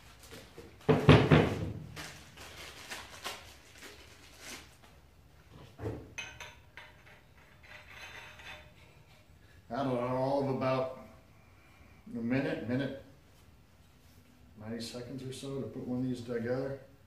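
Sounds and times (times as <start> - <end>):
metal clinks and knocks: 6.1 - 9.3
metal pipe fittings clattering: 6.2 - 9.3.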